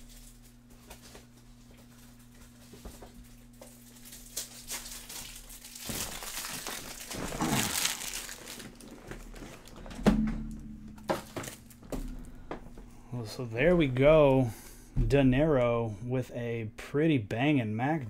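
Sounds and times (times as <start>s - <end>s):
plastic wrapping crinkling: 0.0s - 9.9s, 11.0s - 12.3s.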